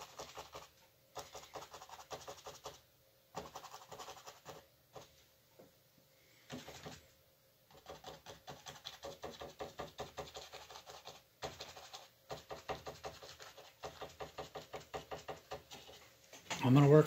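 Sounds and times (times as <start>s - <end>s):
paintbrush tapping on canvas: 12.3s - 16.0s.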